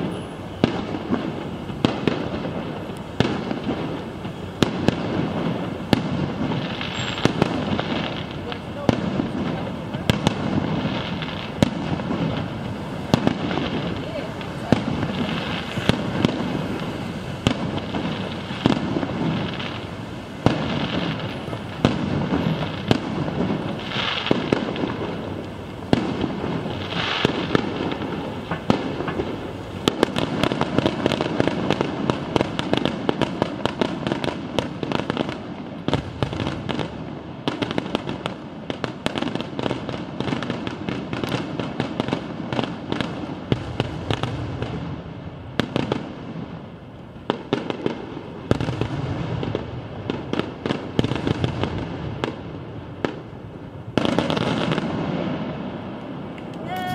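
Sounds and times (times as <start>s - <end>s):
firework shells bursting: 0.0s - 34.0s
steady rumbling wash: 7.6s - 30.2s.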